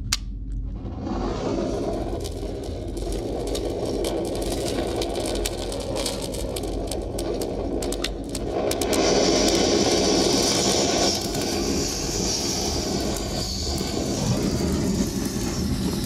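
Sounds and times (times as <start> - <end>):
low rumble: 0.0 - 10.3
kindling fire crackling: 0.6 - 16.0.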